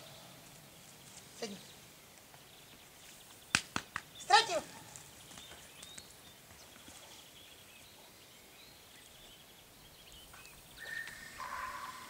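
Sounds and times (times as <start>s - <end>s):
faint high bird chirps: 5.2s - 12.0s.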